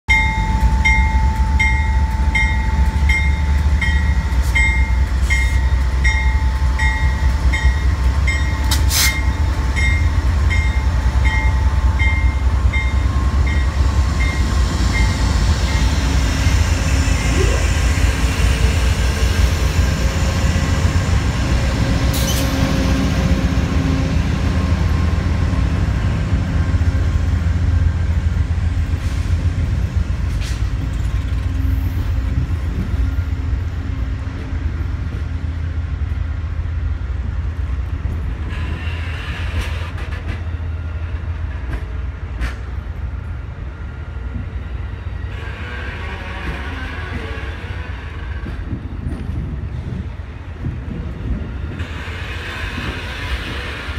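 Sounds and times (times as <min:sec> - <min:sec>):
train bell ringing: 0:00.1 - 0:16.1
diesel locomotive engines rumbling: 0:00.1 - 0:53.9.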